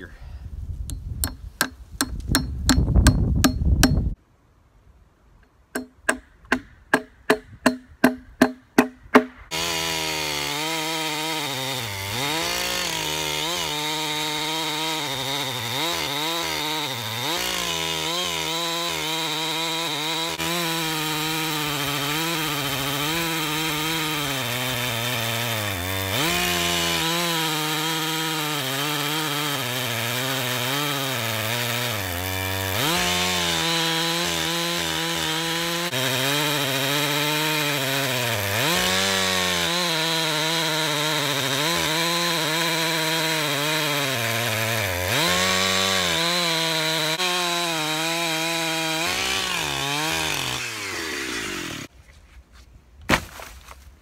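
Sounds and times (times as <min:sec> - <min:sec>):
hammer striking nails: 0:01.2 - 0:04.0, 0:05.7 - 0:09.4
chainsaw cutting log: 0:01.2 - 0:04.2, 0:05.8 - 0:51.9, 0:53.1 - 0:53.7.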